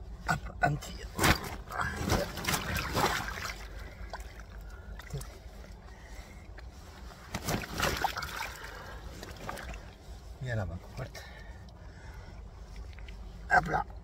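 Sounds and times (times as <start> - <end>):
fish thrashing with wet slaps: 7.3 - 8.6.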